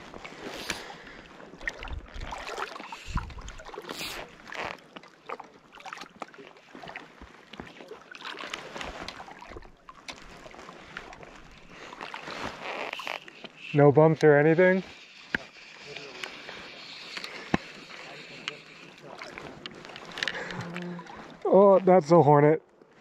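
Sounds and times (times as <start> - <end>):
small waves lapping against float: 0.0 - 23.0
wind buffeting microphone: 3.0 - 3.6.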